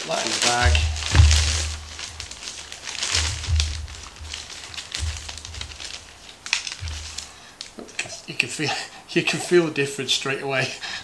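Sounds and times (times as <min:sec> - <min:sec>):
plastic bag rustling: 0:00.0 - 0:07.8
dull low bumps: 0:00.4 - 0:07.3.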